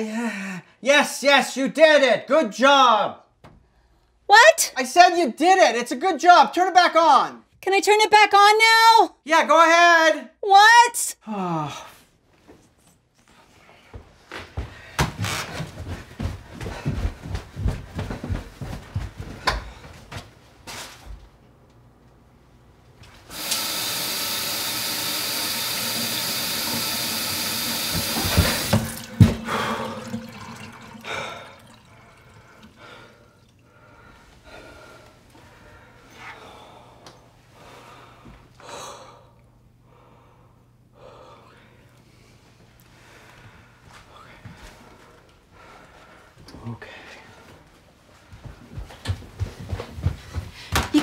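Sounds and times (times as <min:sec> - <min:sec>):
tap water gushing into sink: 0:23.3 - 0:33.6.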